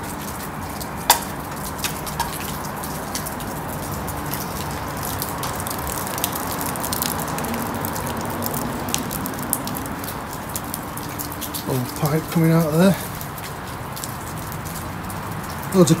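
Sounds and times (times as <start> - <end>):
steady rain: 0.0 - 16.0
water dripping on rock: 0.0 - 16.0.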